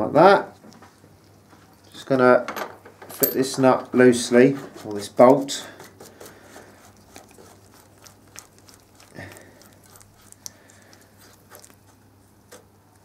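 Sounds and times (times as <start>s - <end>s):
low steady hum: 0.0s - 13.0s
tools and metal parts clicking: 1.8s - 3.7s.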